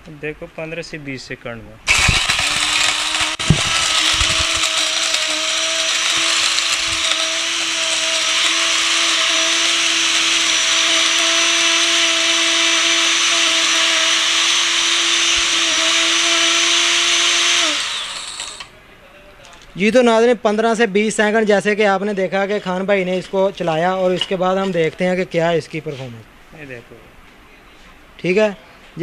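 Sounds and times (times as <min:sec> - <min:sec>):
grinder whining: 0:01.9 - 0:18.7.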